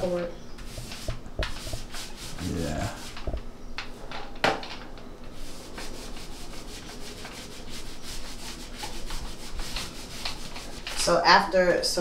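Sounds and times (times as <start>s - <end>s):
paint roller rubbing: 0.0s - 3.4s, 5.3s - 11.2s.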